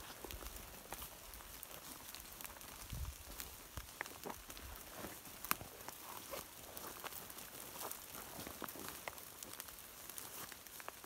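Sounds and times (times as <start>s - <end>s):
footsteps through dry leaves: 0.0s - 11.0s
twigs snapping: 0.0s - 11.0s.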